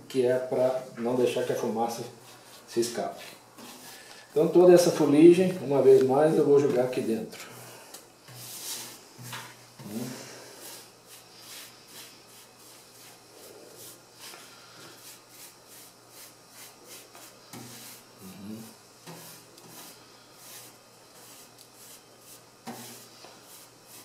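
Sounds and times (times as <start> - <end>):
paintbrush sweeping soot: 1.1 - 4.0, 8.2 - 9.4, 10.0 - 24.0.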